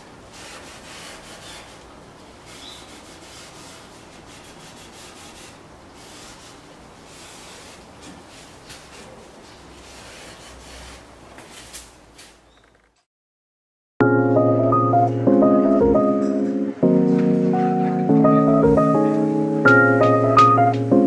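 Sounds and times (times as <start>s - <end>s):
cloth rubbing on wood: 0.3s - 11.8s.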